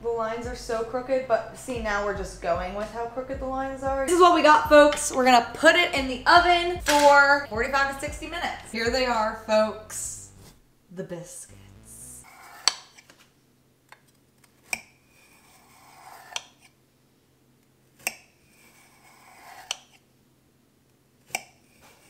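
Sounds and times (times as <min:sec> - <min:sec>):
knife scraping through shortbread: 0:12.2 - 0:13.1, 0:15.0 - 0:16.7, 0:18.2 - 0:20.0, 0:21.5 - 0:22.0.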